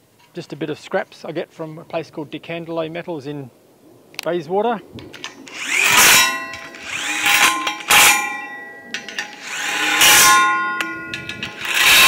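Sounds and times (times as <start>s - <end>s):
cordless drill driving bolts: 5.2s - 12.0s
metal pipe clanging: 5.2s - 12.0s.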